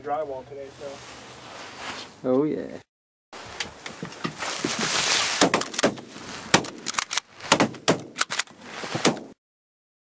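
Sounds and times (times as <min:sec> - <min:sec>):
shotgun shots: 0:05.4 - 0:09.4.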